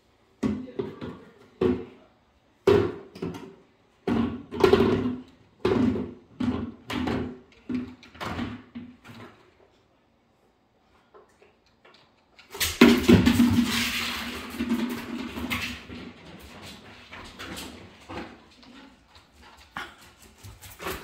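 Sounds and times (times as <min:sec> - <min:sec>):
plastic bucket scraping across floor: 0:12.9 - 0:18.6.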